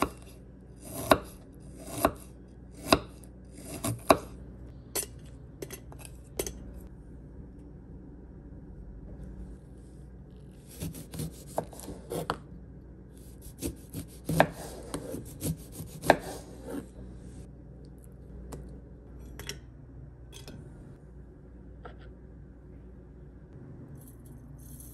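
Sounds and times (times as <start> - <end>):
knife slicing lemon: 10.6 - 12.4, 13.2 - 16.9.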